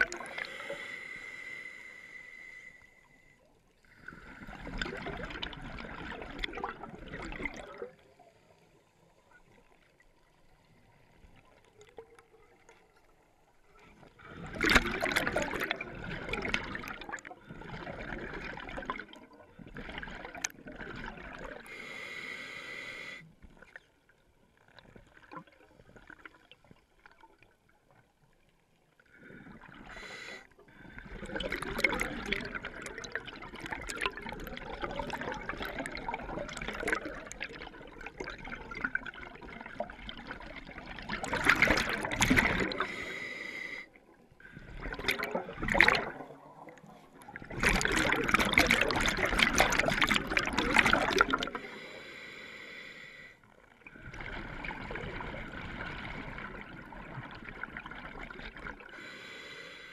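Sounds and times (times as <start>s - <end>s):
diver breathing through regulator: 0.1s - 4.7s, 21.6s - 23.4s, 29.2s - 32.0s, 42.4s - 45.2s, 50.8s - 53.5s, 58.9s - 59.9s.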